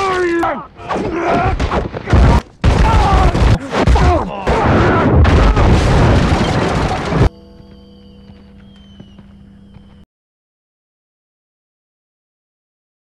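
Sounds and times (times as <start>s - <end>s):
heavy blows and crashes: 0.8s - 7.3s.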